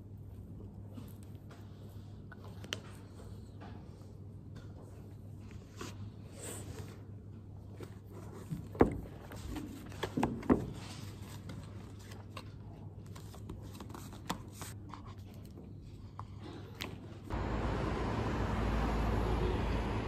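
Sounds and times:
pages flipping and rustling: 7.7 - 17.1
steady low hum: 17.3 - 20.0.

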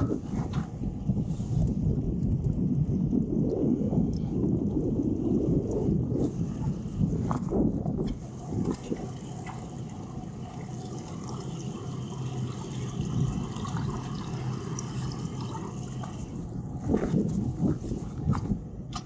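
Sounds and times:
water lapping against hull: 0.0 - 19.0
wind buffeting microphone: 0.0 - 19.0
outboard motors idling: 4.4 - 19.0.

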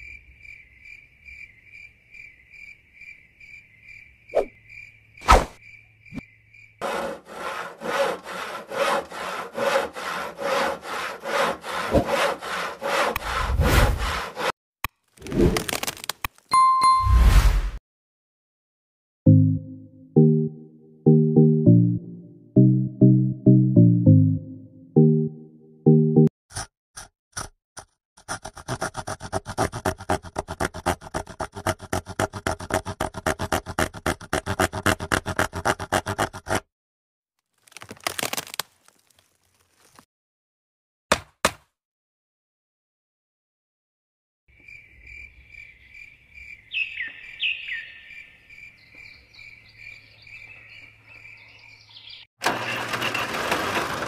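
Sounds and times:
saw cutting tree branch: 6.8 - 14.6, 26.5 - 36.7, 37.6 - 40.0, 52.4 - 54.0.

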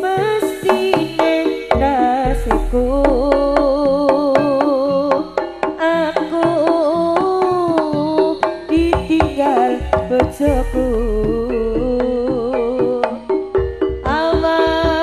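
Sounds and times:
drums beating quickly: 0.4 - 13.1
wavering held melody: 1.6 - 6.1, 7.4 - 13.9
deep low boom: 2.3 - 4.2.

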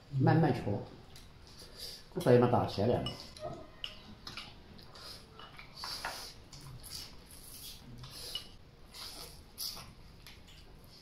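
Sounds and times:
chewing smacks: 3.3 - 11.0.

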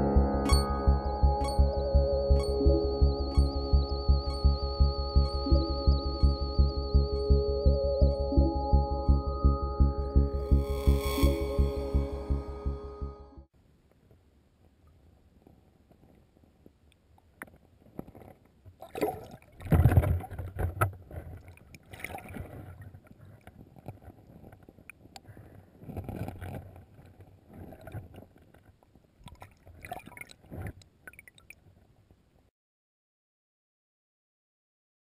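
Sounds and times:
water sloshing underwater: 17.9 - 25.2, 25.8 - 32.0.

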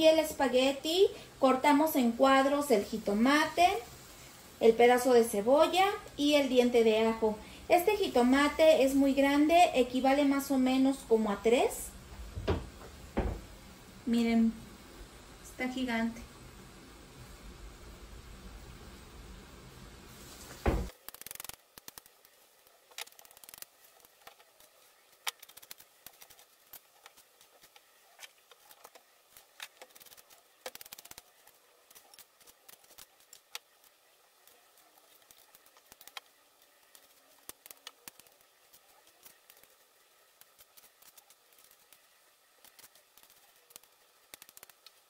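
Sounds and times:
loud knock: 12.4 - 13.5.

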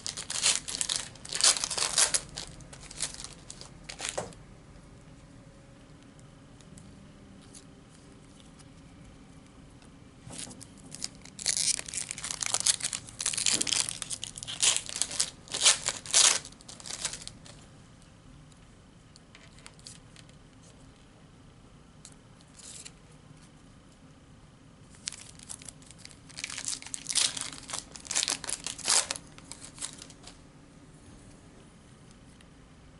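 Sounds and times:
foil wrapper tearing and crinkling: 0.0 - 4.3, 10.4 - 17.6, 24.9 - 30.4.

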